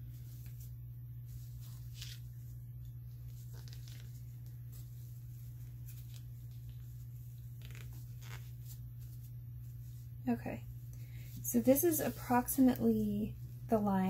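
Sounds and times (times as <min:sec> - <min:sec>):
fabric rustling and scratching: 0:00.0 - 0:10.4
steady low hum: 0:00.0 - 0:14.0.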